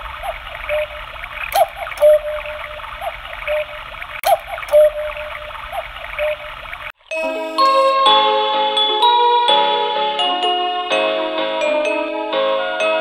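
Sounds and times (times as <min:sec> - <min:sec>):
small chirps: 0:00.0 - 0:06.9
electronic cuckoo call: 0:00.0 - 0:08.1.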